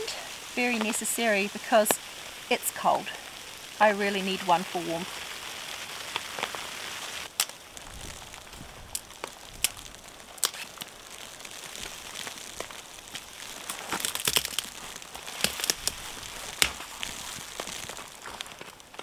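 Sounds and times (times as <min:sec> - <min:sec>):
dry branches snapping: 0:07.2 - 0:19.0.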